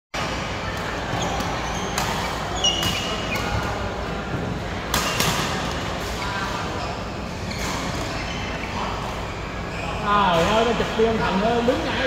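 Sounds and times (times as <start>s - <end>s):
busy hall noise: 0.2s - 12.0s
shoes squeaking on court floor: 0.9s - 3.8s, 5.0s - 10.8s
racket hitting shuttlecock: 4.9s - 6.1s.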